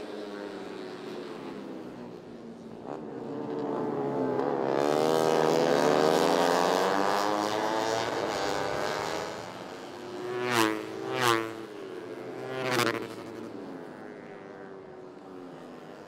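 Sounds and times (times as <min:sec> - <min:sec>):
motorcycle engines at high revs: 0:00.0 - 0:16.0
motorcycles passing: 0:00.0 - 0:16.0.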